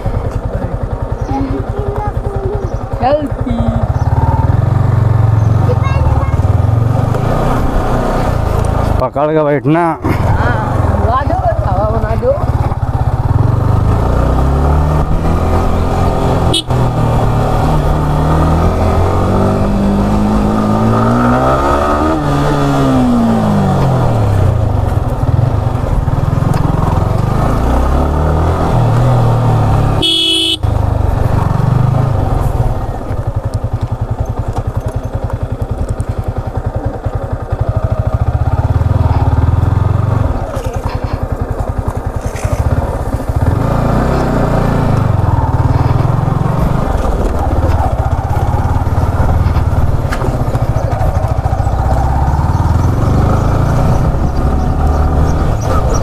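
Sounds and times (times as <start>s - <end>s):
motorcycle engine riding: 0.0s - 56.0s
horn beep: 16.5s - 16.9s, 30.0s - 30.7s.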